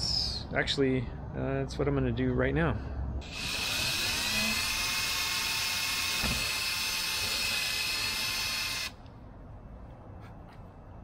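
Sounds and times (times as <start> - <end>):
cordless drill whining: 3.2 - 9.0.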